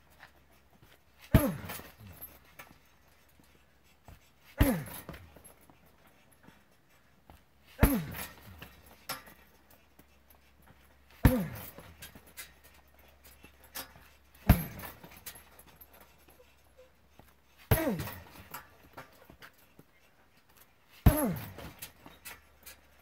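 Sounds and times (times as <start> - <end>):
punching bag thuds: 1.3 - 2.4, 4.6 - 5.5, 7.8 - 9.3, 11.2 - 12.3, 14.4 - 15.5, 17.7 - 18.6, 21.0 - 21.9.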